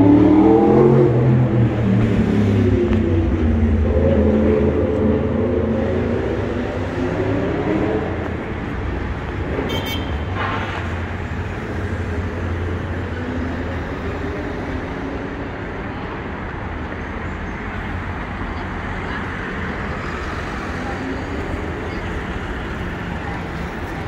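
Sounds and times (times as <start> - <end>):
traffic passing: 0.0 - 24.0.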